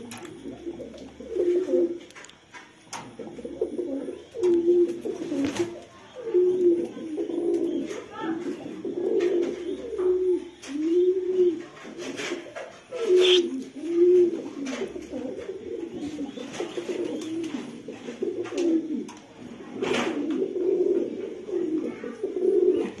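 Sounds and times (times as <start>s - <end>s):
pigeons cooing: 0.0s - 23.0s.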